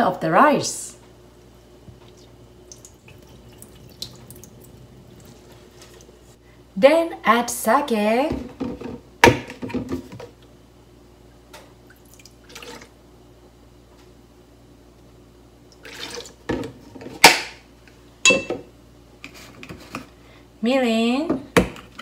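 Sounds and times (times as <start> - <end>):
liquid trickling and dripping: 1.9 - 6.4, 11.8 - 12.9.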